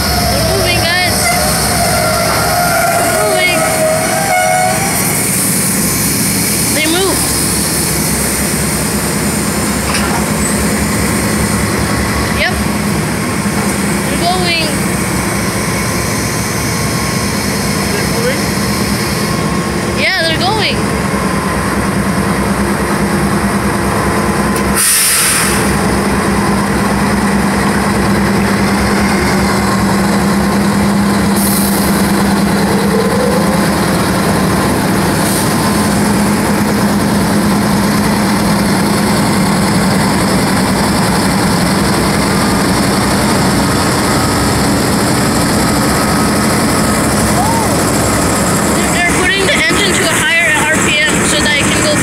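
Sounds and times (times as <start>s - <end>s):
diesel locomotive engine hum: 0.0s - 52.0s
air hiss: 24.7s - 25.8s.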